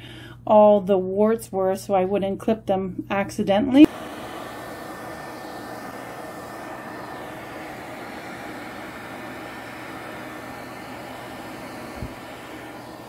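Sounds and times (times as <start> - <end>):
pet blow dryer blowing air: 3.8 - 13.0.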